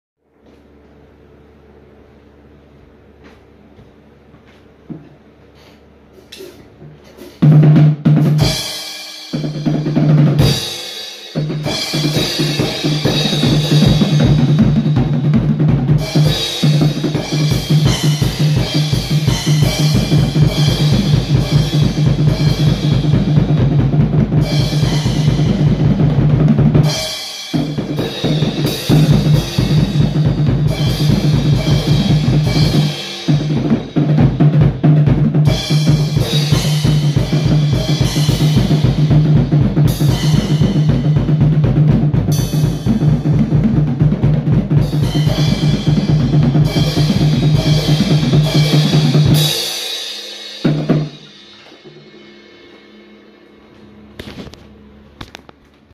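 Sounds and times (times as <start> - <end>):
drum kit playing: 4.9 - 55.9
cymbals ringing: 44.9 - 55.0.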